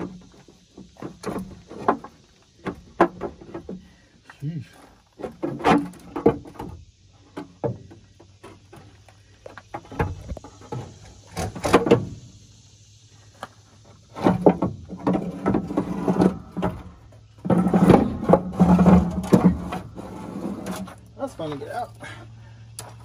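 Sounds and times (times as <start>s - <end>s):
metal cover rattling scrape: 14.0s - 21.1s.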